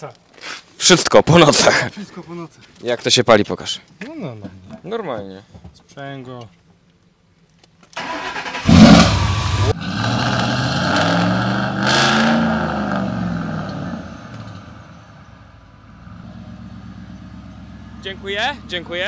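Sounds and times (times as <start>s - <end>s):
truck engine starting and idling: 8.0s - 12.7s.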